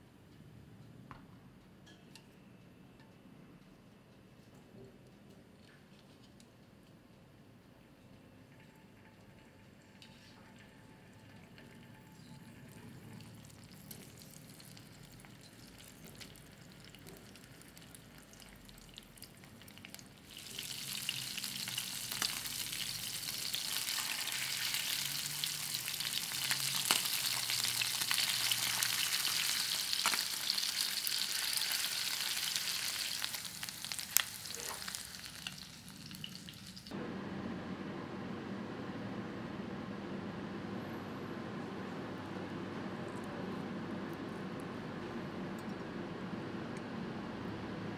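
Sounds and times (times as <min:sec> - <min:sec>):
fish sizzling in a pan: 0:20.2 - 0:36.9.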